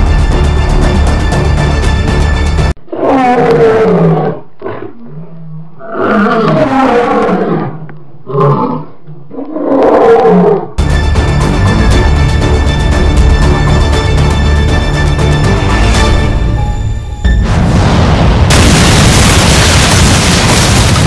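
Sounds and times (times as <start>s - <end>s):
background music: 0.0s - 2.8s, 10.8s - 18.6s
big cat roaring and growling: 2.9s - 10.8s.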